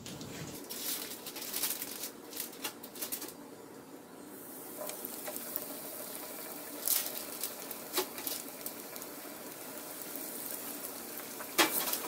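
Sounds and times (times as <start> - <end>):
hot oil crackling and popping: 0.6 - 3.4, 4.4 - 12.0
patty sizzling in oil: 4.3 - 12.0.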